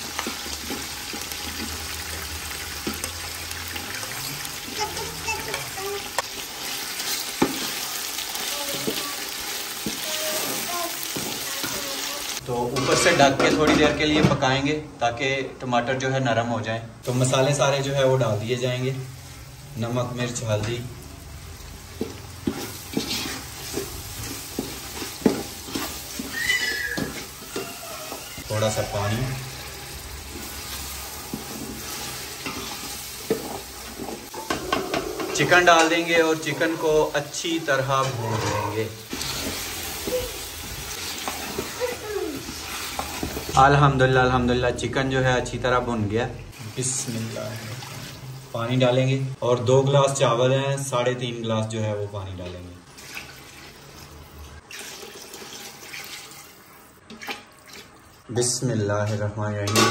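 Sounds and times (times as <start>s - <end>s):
vegetables sizzling in oil: 0.0s - 13.5s, 17.0s - 57.2s
wooden spoon stirring: 21.8s - 43.6s
wooden spoon scraping pot: 22.0s - 28.5s
high squeal: 26.2s - 29.4s.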